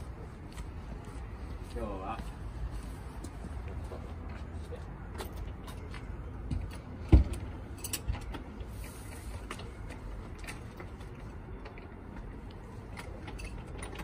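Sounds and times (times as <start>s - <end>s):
key rattling in door lock: 12.9s - 14.0s.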